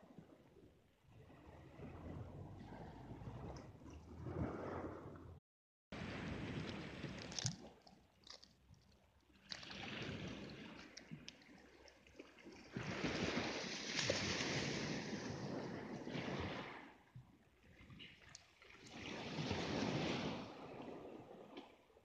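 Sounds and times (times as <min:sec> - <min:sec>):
waves washing over pebbles: 0:06.0 - 0:17.0, 0:18.7 - 0:21.5.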